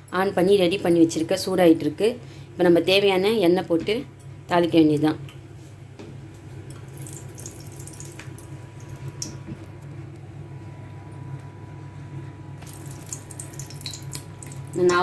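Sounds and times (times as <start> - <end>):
stove low hum: 0.0 - 15.0
pan crackling and ticking: 6.8 - 9.8, 12.6 - 15.0.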